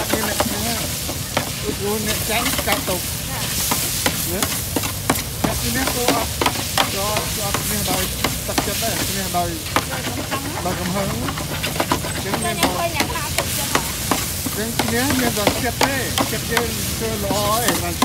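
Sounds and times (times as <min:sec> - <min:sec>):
food sizzling in a hot pan: 0:00.0 - 0:18.0
metal utensil scraping a pan: 0:00.0 - 0:18.0.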